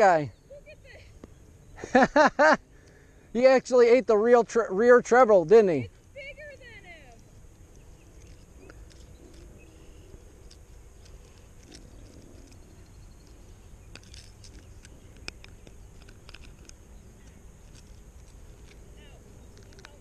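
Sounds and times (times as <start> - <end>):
low outdoor rumble: 0.0 - 20.0
small clicks of fishing hooks: 10.4 - 18.8, 19.5 - 20.0.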